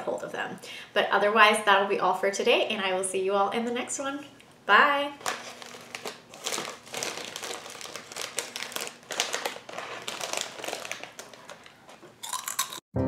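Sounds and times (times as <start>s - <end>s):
plastic packaging crinkling: 5.1s - 12.8s.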